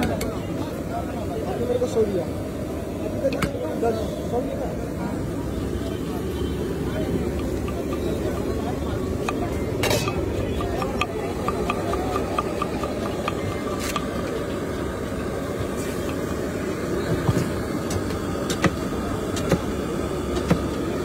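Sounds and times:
vehicle engines running: 4.6 - 21.0.

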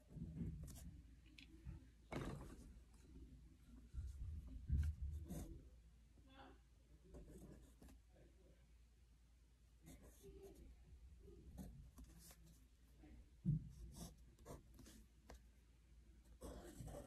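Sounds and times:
pencil scratching on paper: 4.7 - 5.6, 11.6 - 12.6, 13.7 - 15.4, 16.4 - 17.0.

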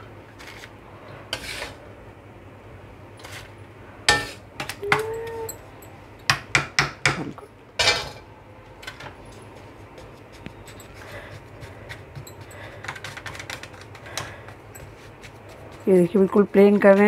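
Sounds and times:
spatula scraping a tin: 1.3 - 1.8, 10.7 - 17.0.

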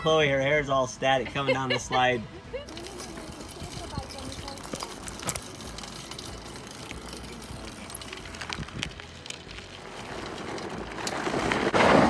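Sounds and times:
tyres rolling over gravel: 2.6 - 12.0.

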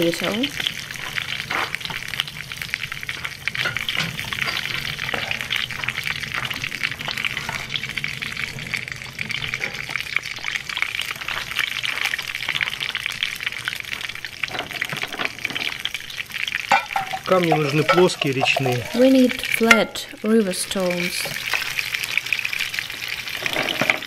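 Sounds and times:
stones sizzling in a hot pot: 0.0 - 24.0.

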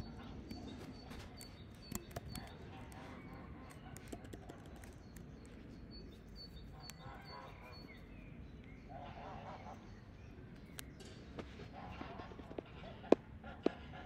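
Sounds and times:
low background hum: 0.0 - 14.0
keyboard typing: 0.6 - 5.6.

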